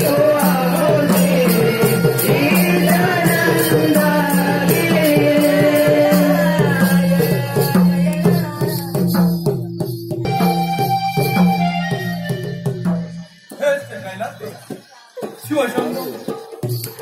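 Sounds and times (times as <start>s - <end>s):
melody of held notes: 10.2s - 13.3s.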